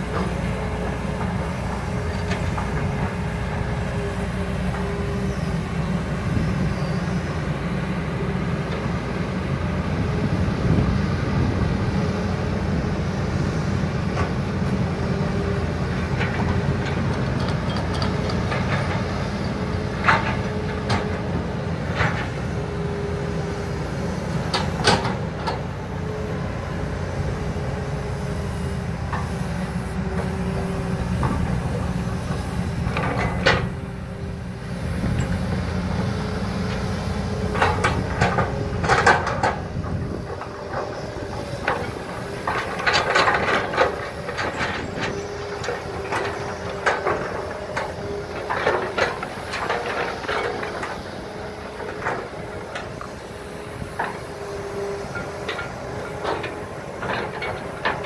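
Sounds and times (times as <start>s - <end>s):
excavator diesel engines humming: 0.0s - 58.0s
excavator buckets knocking and clanking: 14.0s - 23.0s, 24.3s - 26.5s, 29.0s - 58.0s.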